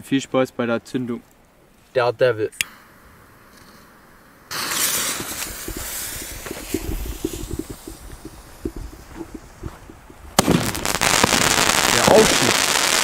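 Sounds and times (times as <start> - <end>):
firework fuse hissing: 2.7 - 13.0
firework crackling: 2.9 - 13.0
firework bang: 4.5 - 13.0
soft thumps and rustling: 5.1 - 10.4.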